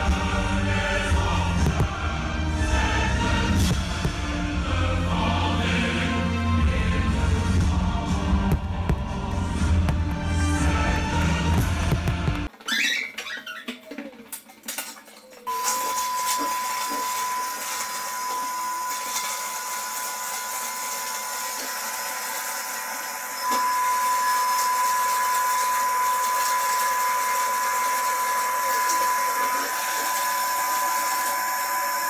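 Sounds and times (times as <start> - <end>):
vacuum motor whining: 15.5 - 32.0.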